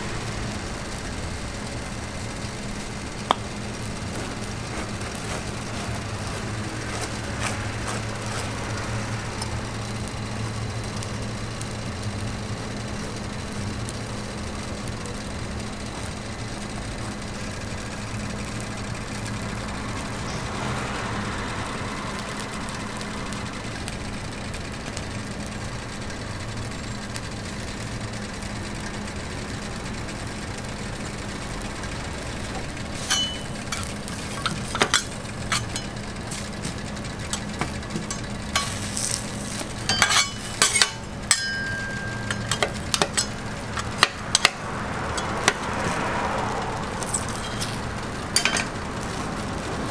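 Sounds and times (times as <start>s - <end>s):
griddle sizzle: 0.0s - 49.9s
low machine hum: 0.0s - 49.9s
metal spatula clinking on metal: 33.0s - 36.0s, 37.3s - 39.1s, 39.8s - 44.6s, 48.4s - 48.7s.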